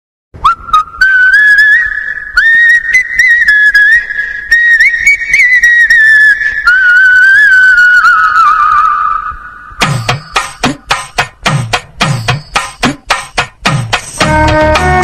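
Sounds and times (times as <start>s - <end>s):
whistled tune: 0.4s - 10.8s, 14.2s - 15.0s.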